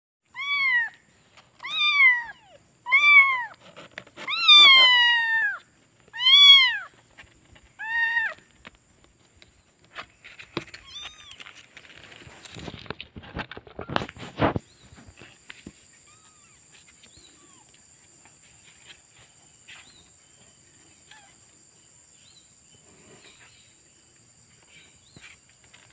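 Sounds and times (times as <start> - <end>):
kitten meowing: 0.3 - 1.0, 1.6 - 3.6, 4.2 - 6.9, 10.8 - 11.4
rustling and handling noise: 2.9 - 21.6, 22.8 - 25.9.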